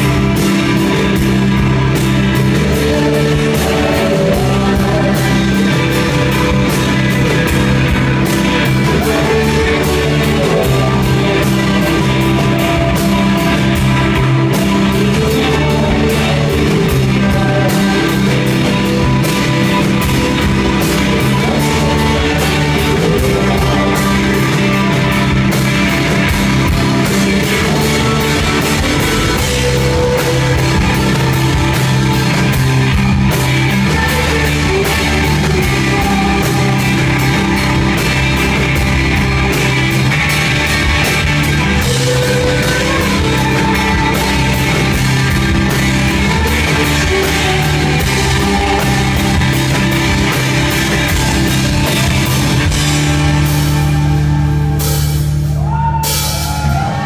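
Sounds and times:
live rock band playing: 0.0 - 57.0.

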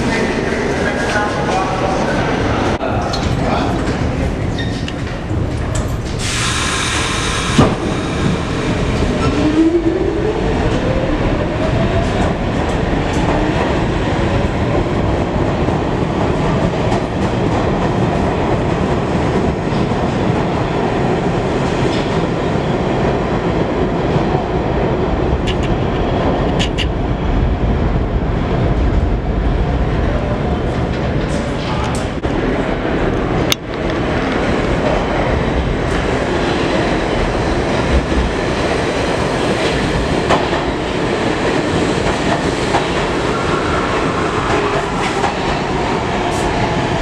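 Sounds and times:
air brakes hissing: 6.1 - 8.2.

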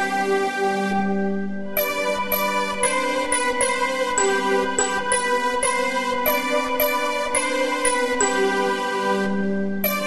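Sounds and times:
held chords with steady pulse: 0.0 - 10.0.

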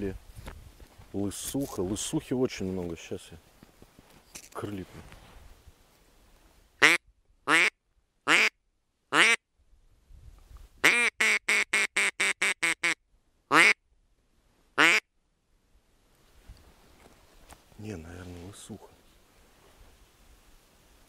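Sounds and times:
duck call quacks: 6.8 - 8.5, 9.1 - 9.4, 10.8 - 13.8, 14.8 - 15.0.

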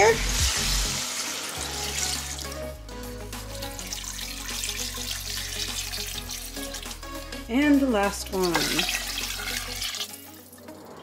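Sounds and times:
background music: 0.0 - 11.0
liquid pouring into a metal pot: 3.6 - 7.0, 8.5 - 10.8.

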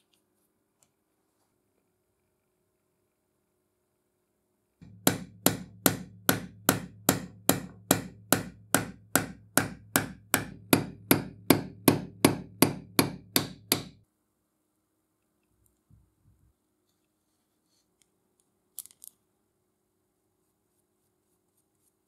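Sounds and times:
hammer tapping on steel: 4.8 - 14.0.

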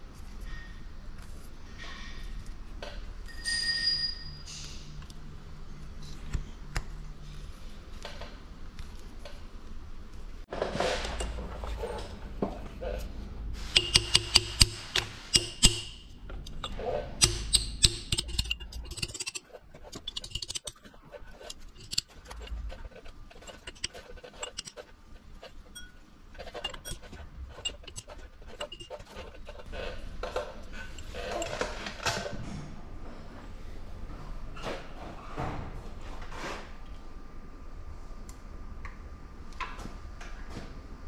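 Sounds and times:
mallet striking metal: 13.8 - 18.8.

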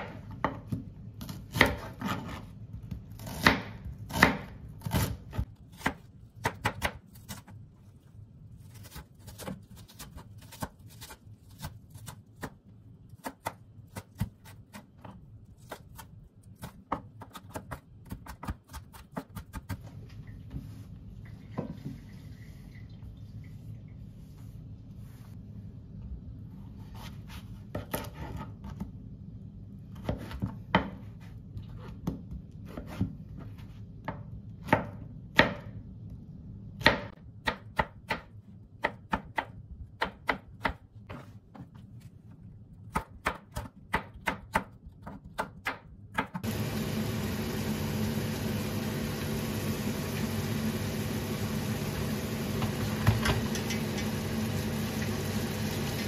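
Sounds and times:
knife chopping on cutting board: 0.0 - 7.6, 42.9 - 46.5.

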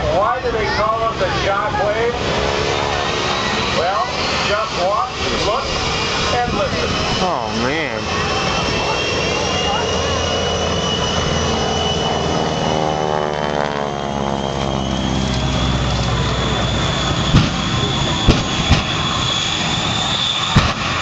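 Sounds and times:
jet engines whining and rushing: 0.0 - 21.0
sharp bangs: 17.1 - 21.0.

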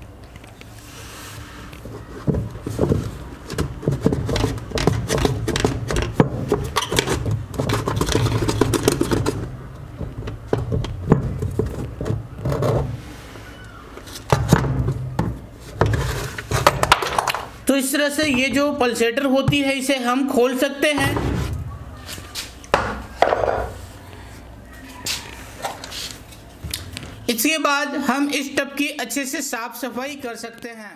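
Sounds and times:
plastic scraping and rattling: 1.7 - 13.0, 14.0 - 17.5.

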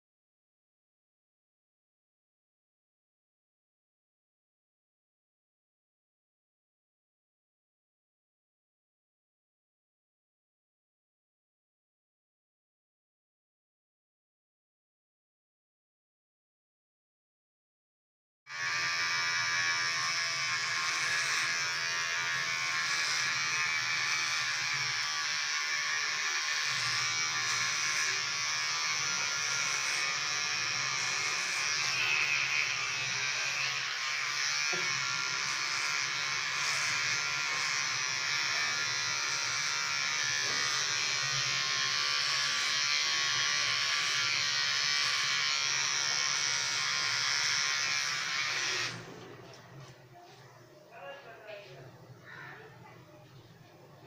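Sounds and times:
electric hair clippers cutting hair: 18.5 - 49.2.

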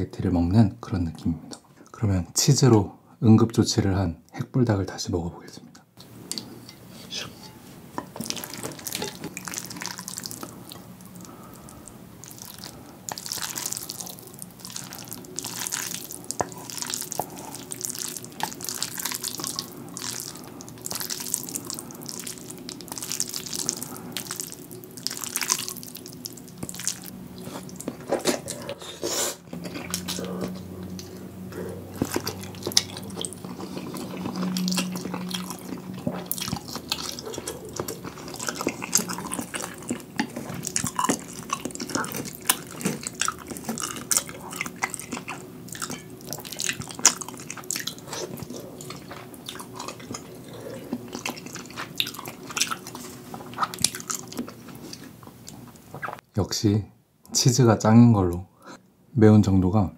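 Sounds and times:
chewing: 6.0 - 56.2
slurping noodles: 8.2 - 55.1.

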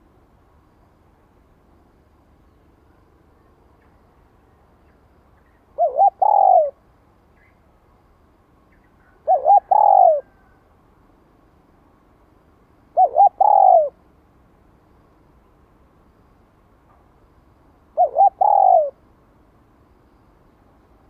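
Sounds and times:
dove cooing: 5.7 - 6.8, 9.0 - 10.6, 12.9 - 14.0, 18.0 - 19.0.

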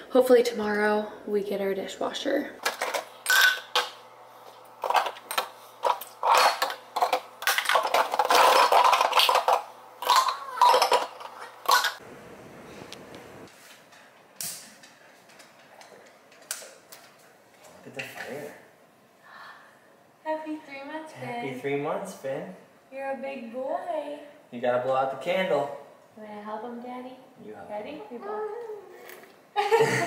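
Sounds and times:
dishes and cutlery clattering: 5.8 - 12.0.

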